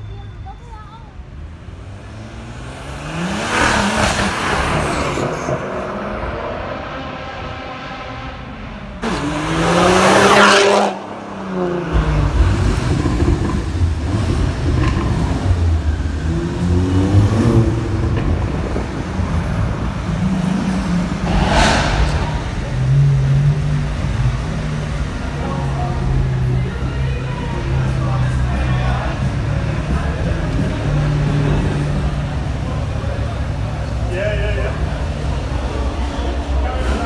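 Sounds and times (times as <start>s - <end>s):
car engines rumbling: 0.0s - 37.0s
car engine revving: 1.7s - 15.6s
car accelerating past: 20.6s - 25.1s.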